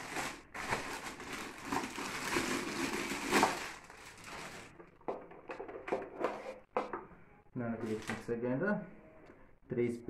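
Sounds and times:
plastic bag crinkling: 0:00.0 - 0:05.0.

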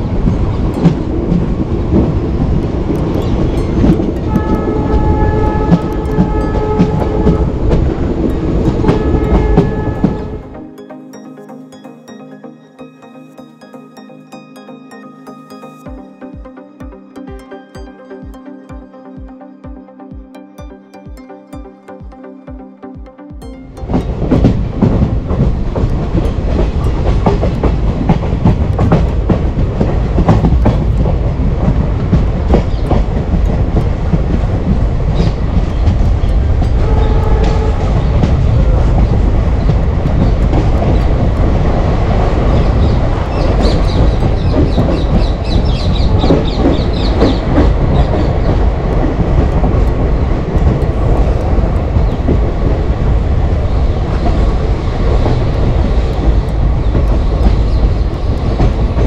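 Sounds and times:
train rumbling: 0:00.0 - 0:19.0, 0:22.6 - 0:59.0
wheels clacking over rail joints: 0:24.0 - 0:59.0.

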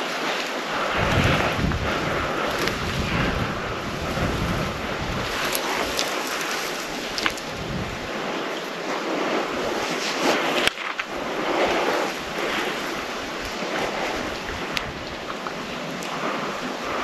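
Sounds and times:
wind rushing through pines: 0:00.0 - 0:17.0.

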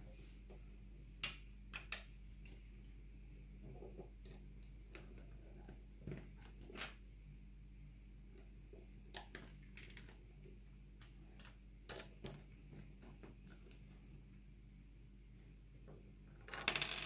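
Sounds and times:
steady low hum: 0:00.0 - 0:06.4, 0:07.0 - 0:09.1
plastic bricks clicking: 0:09.1 - 0:10.2.

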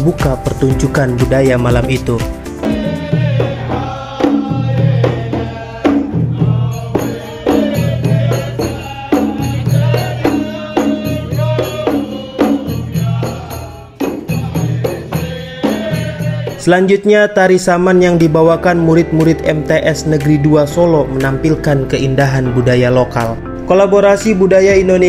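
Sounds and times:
drums beating: 0:00.0 - 0:16.8, 0:18.2 - 0:25.0
men chanting together: 0:02.6 - 0:16.8.

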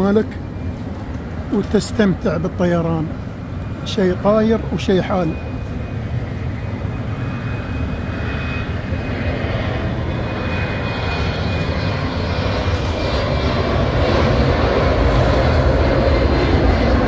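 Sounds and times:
jet engine rumble and whine: 0:00.0 - 0:17.0.

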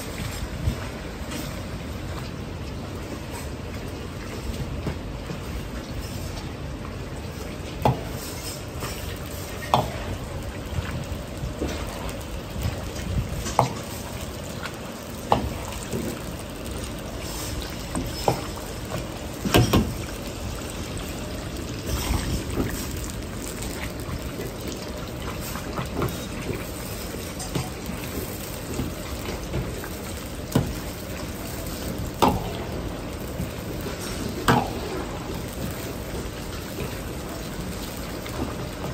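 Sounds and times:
pork sizzling in hot oil: 0:00.0 - 0:38.9
gas burner running: 0:07.8 - 0:38.9.

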